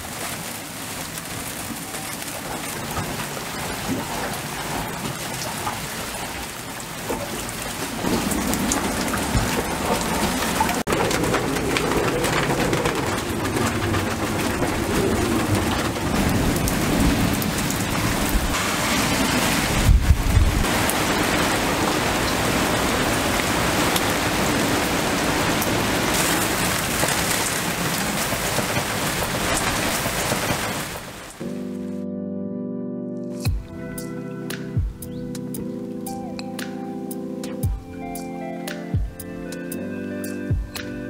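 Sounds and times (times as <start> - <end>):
heavy rain pouring: 0.0 - 31.8.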